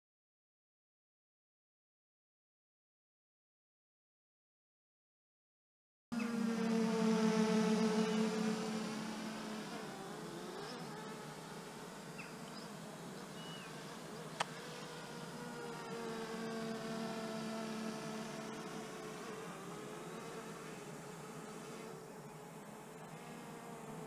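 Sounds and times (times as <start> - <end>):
drone propellers buzzing: 6.2 - 24.0.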